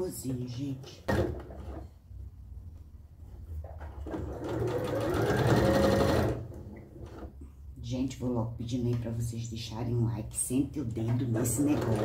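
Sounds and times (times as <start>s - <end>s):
sewing machine stitching: 3.8s - 7.3s, 11.3s - 12.0s.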